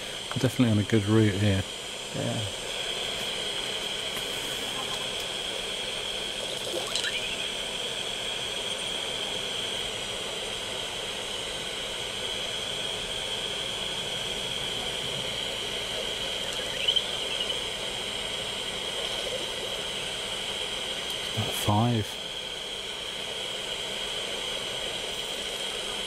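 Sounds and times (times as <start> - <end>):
high whine: 0.0 - 26.0
chirping glides: 6.6 - 7.7, 15.8 - 18.4.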